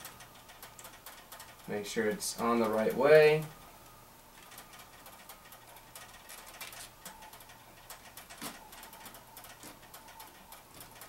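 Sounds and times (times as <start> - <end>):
small hard parts clicking: 0.0 - 1.8, 4.4 - 11.0.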